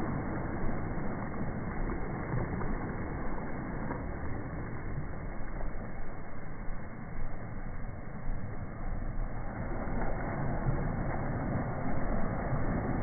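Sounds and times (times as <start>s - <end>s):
small waves washing on sand: 0.0s - 13.0s
wind rumbling on microphone: 0.0s - 13.0s.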